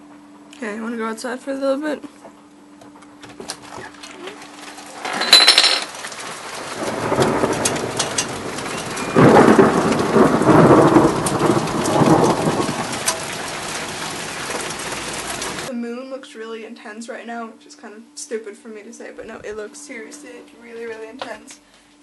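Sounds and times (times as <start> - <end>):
heavy rain falling: 4.0 - 15.7
rolling thunder: 5.9 - 15.7.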